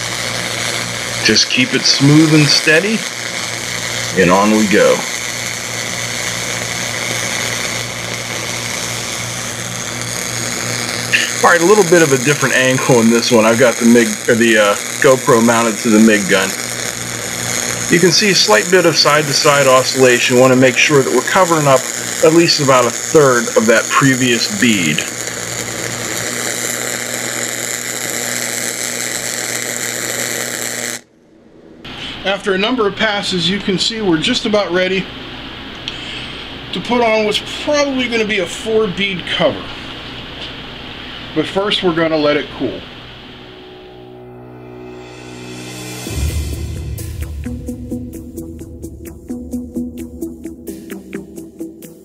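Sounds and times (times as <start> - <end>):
welding arc crackling and sizzling: 0.0 - 31.1, 35.7 - 52.0
low hum: 0.0 - 32.2, 42.4 - 52.0
low steady hum: 31.0 - 49.5.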